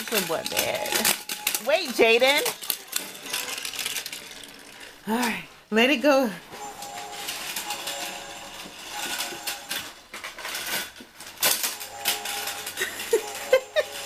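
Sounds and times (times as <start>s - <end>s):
plastic toy pieces clattering: 0.0s - 5.4s, 6.7s - 14.0s.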